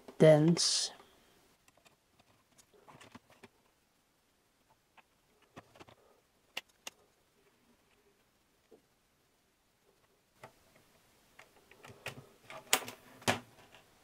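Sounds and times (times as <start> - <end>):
cable rustling: 1.6 - 3.8, 4.6 - 8.8.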